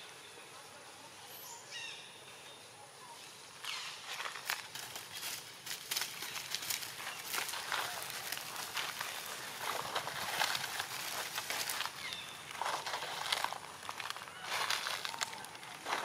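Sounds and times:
dry leaves rustling and crunching: 0:03.6 - 0:16.0.

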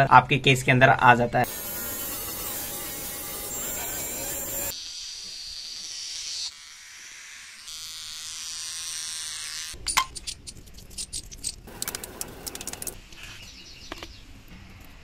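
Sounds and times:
beard trimmer motor buzzing: 0:01.4 - 0:04.8, 0:11.7 - 0:13.0
water splashing: 0:11.7 - 0:13.0.

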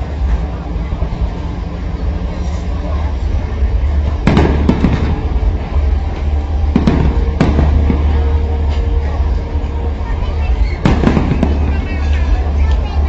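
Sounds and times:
steady low rumble: 0:00.0 - 0:13.0
firework shells bursting: 0:04.2 - 0:05.6, 0:10.8 - 0:12.8.

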